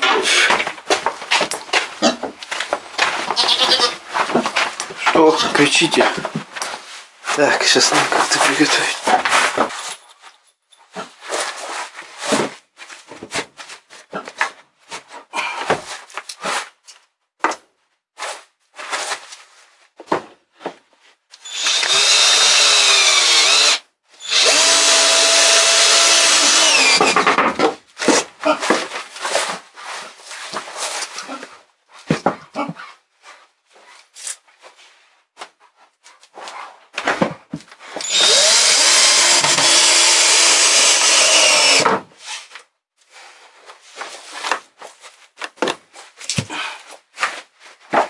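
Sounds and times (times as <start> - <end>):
drill driving screws into wood: 21.4 - 27.3, 38.0 - 42.0
boards knocking and rattling: 26.7 - 28.9, 41.2 - 42.2.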